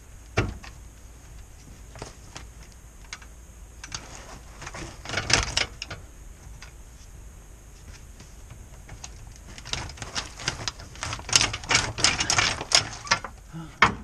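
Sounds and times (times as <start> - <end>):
sharp metallic clicks and rattles: 2.6 - 6.8, 8.4 - 14.0.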